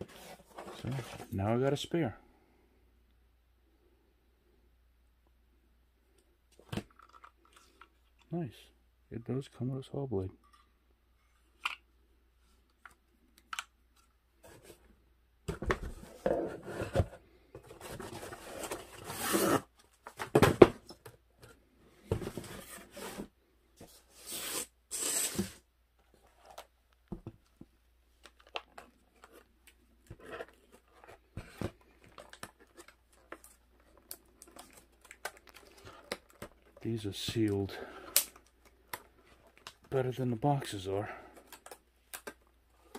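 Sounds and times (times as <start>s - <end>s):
cardboard ripping and crunching: 18.5s - 19.6s
plastic blister pack crinkling: 31.9s - 39.9s.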